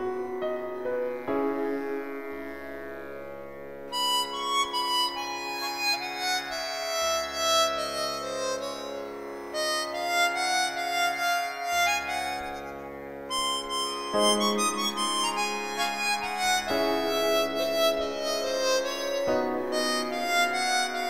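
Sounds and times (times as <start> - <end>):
steady held drone: 0.0 - 21.0
melody of short notes: 13.3 - 21.0.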